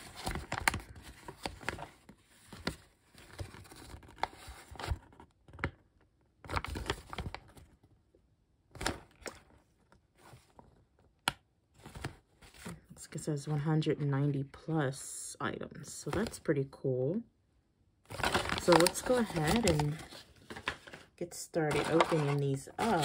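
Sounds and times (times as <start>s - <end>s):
paper rustling and crinkling: 0.0s - 5.7s, 6.4s - 7.8s, 11.7s - 13.0s, 18.1s - 23.0s
paper cracking: 18.1s - 21.1s, 21.7s - 23.0s.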